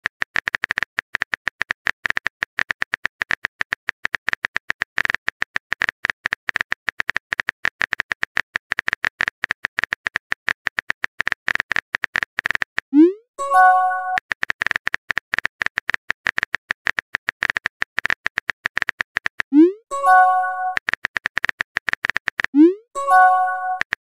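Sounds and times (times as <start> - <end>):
keyboard typing clicks: 11.5 - 24.0.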